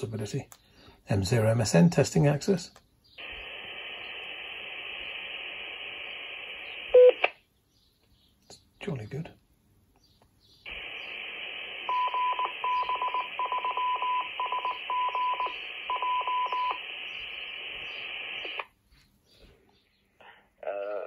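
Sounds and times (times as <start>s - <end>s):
radio static hiss: 3.2s - 7.4s, 10.7s - 18.8s, 20.6s - 21.0s
morse code beeping: 7.0s - 7.2s, 11.8s - 16.8s.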